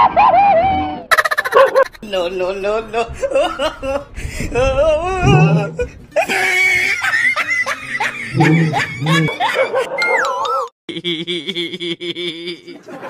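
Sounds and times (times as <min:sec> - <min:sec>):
person laughing: 0:01.1 - 0:02.0, 0:03.1 - 0:10.2, 0:10.9 - 0:13.0.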